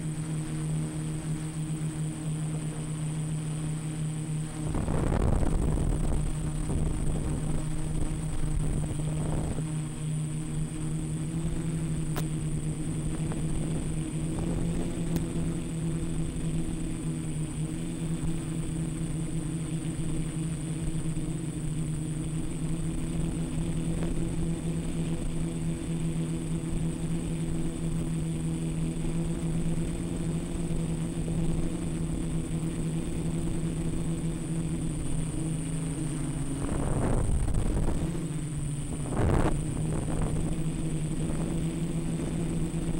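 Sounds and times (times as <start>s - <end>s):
drone propellers buzzing: 0.0s - 42.9s
thin high whine: 0.0s - 42.9s.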